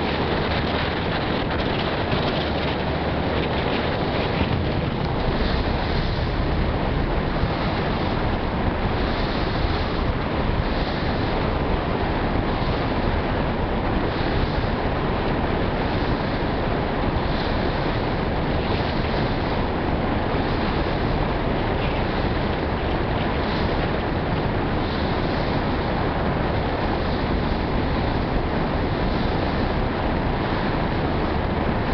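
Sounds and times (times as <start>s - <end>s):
water washing past ferry: 0.0s - 31.9s
wind on microphone: 0.0s - 31.9s.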